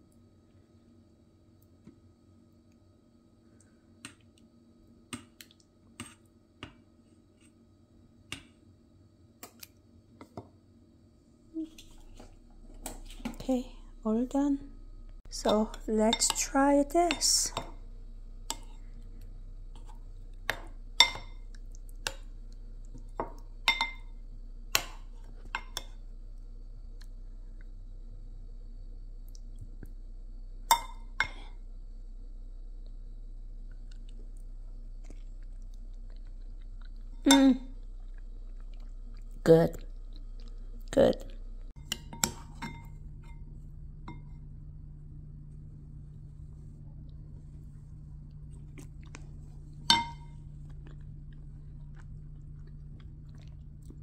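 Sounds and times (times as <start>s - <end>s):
faint hum: 0.0s - 54.0s
spoon clinking on ceramic bowl: 20.5s - 21.4s, 23.7s - 24.1s, 41.9s - 43.4s, 49.9s - 50.4s.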